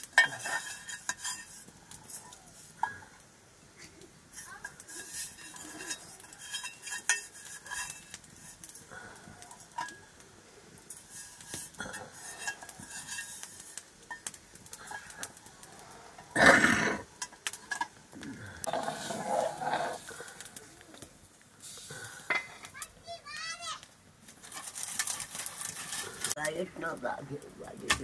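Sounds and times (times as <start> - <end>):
ladle clinking against pots: 0.0 - 1.6, 4.6 - 8.6.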